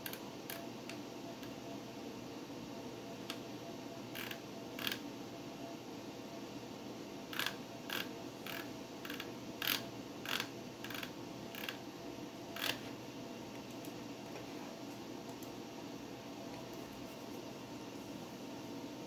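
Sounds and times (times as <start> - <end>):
computer humming: 0.0 - 19.0.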